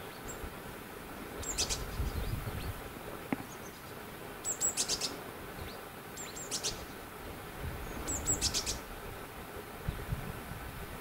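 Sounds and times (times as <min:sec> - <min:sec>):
small bird chirping: 0:01.4 - 0:02.8, 0:03.4 - 0:07.0, 0:07.8 - 0:08.9.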